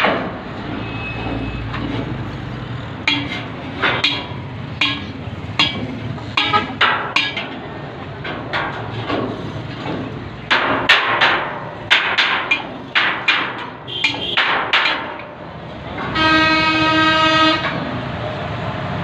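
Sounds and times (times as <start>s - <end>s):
sharp knocks: 0.0s - 0.4s, 3.0s - 7.6s, 8.2s - 15.4s.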